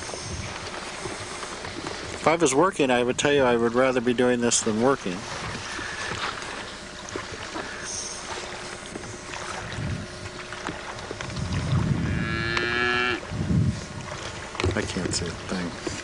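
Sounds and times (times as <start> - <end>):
cow mooing: 11.9 - 13.2.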